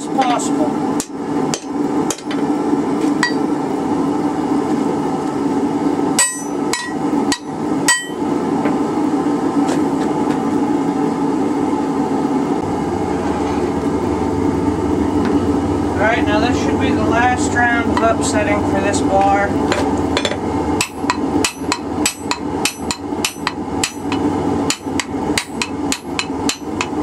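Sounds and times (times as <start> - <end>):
steady drone: 10.6 - 27.0.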